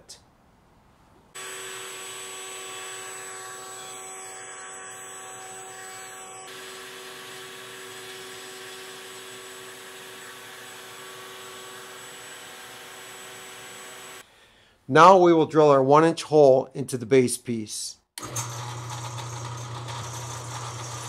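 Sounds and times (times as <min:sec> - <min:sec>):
router whining cutting wood: 0:01.4 - 0:14.2, 0:18.2 - 0:21.0.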